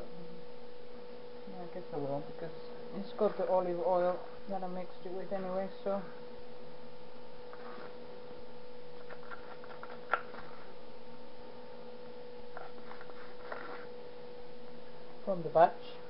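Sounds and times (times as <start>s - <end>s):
electrical hum: 0.0s - 16.0s
spoon scraping plastic cup: 7.5s - 8.0s, 9.0s - 10.7s, 12.5s - 13.9s.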